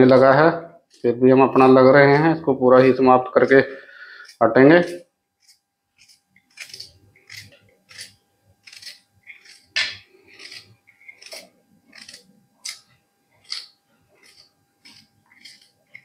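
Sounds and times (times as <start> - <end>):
knife chopping on a plate: 8.7 - 12.8.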